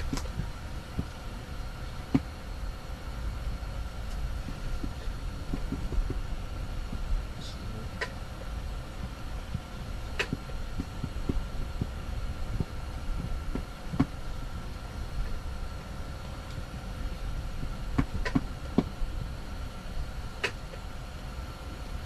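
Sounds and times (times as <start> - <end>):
faint steady hum: 0.0 - 22.0
wind buffeting tent: 4.0 - 7.4, 8.2 - 20.1.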